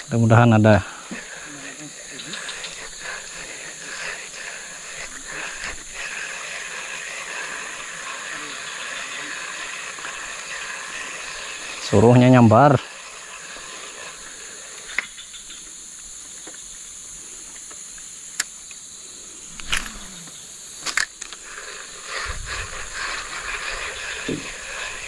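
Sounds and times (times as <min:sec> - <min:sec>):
high-pitched insect chorus: 0:00.0 - 0:25.0
rough rustling noise: 0:19.4 - 0:25.0
sharp clicks: 0:19.5 - 0:21.4.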